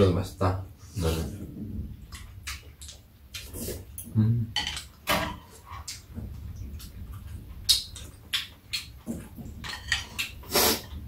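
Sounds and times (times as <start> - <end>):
chewing: 2.0 - 4.2, 4.8 - 11.0.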